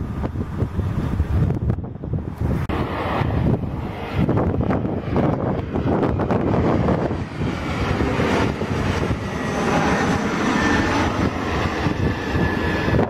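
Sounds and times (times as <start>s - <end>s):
jet engine rush overhead: 0.0s - 13.0s.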